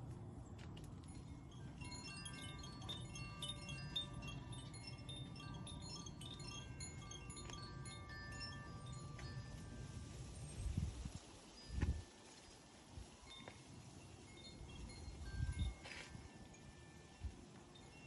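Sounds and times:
metal wind chimes ringing: 0.9 - 18.0.

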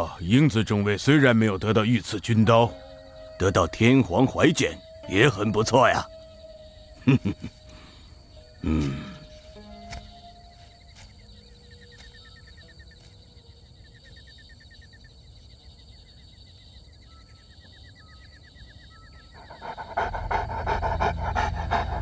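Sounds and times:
faint chirping: 0.0 - 22.0
large dog panting: 19.3 - 22.0.

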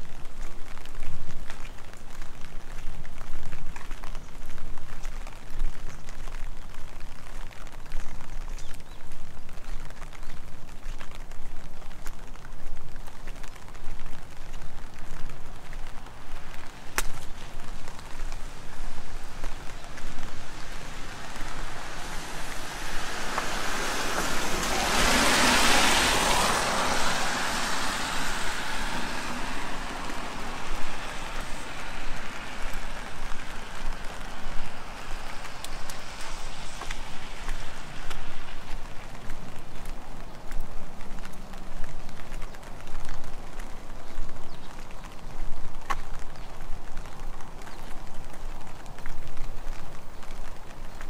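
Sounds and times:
steady rain: 0.0 - 51.0
van tyres hissing on wet road: 15.0 - 43.7.

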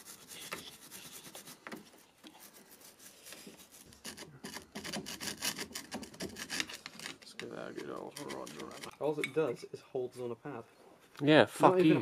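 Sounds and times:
hand tool scraping metal: 2.4 - 9.0.

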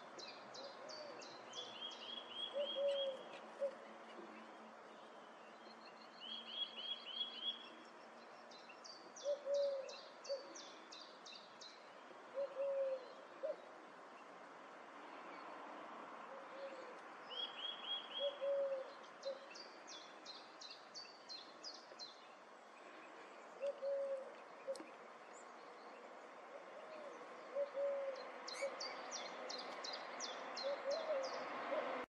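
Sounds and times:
song thrush singing: 0.0 - 3.8, 4.4 - 14.4, 16.3 - 32.0
bird cooing: 0.6 - 1.3, 2.3 - 4.3, 9.2 - 10.7, 12.3 - 13.7, 16.3 - 17.0, 17.8 - 19.6, 23.6 - 24.9, 26.5 - 29.8, 30.6 - 32.0.

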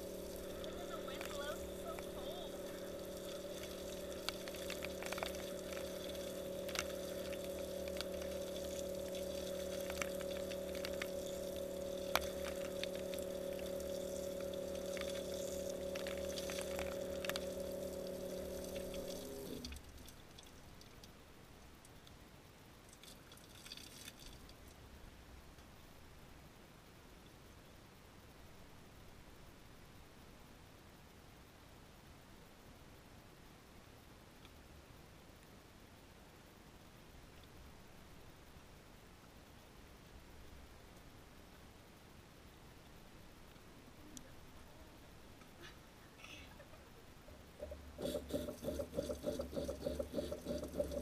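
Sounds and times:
shower water spraying: 0.0 - 20.1, 48.0 - 51.0
drops ticking: 0.0 - 20.5
faint drips: 0.0 - 21.1
water supply hum: 0.0 - 26.0, 39.7 - 51.0.

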